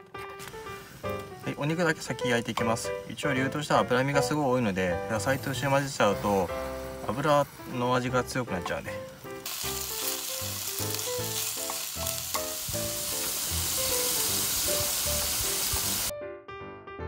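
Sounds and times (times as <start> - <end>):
beef sizzling in a frying pan: 5.2 - 16.1.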